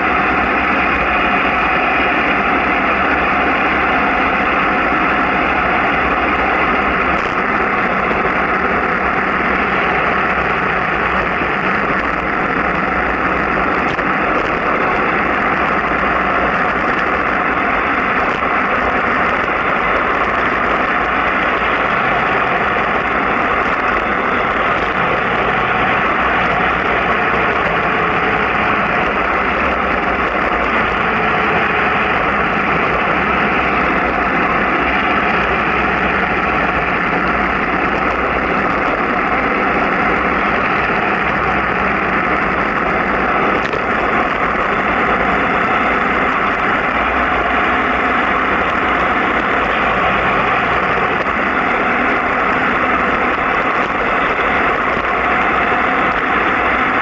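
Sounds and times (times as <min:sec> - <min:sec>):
wind and road noise: 0:00.0 - 0:57.0.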